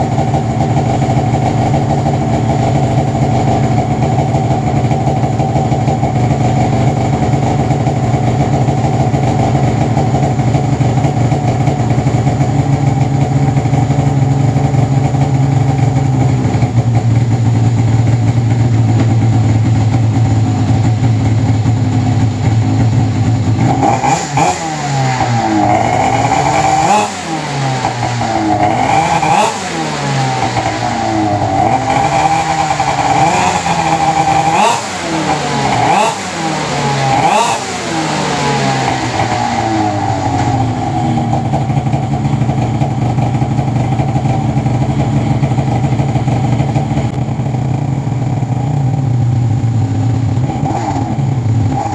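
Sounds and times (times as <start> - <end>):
snowmobile engine idling: 0.0 - 51.9
snowmobile engine revving: 23.6 - 41.9.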